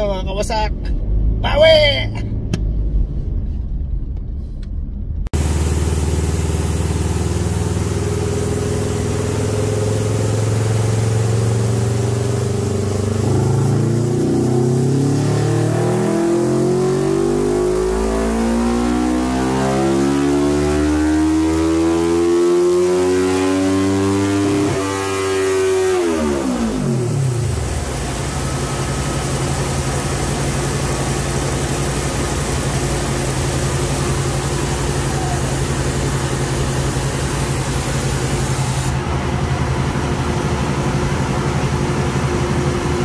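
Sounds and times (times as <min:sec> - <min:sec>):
motorcycle engine idling: 0:05.4 - 0:13.2, 0:27.5 - 0:43.0
motorcycle engine revving: 0:05.4 - 0:43.0.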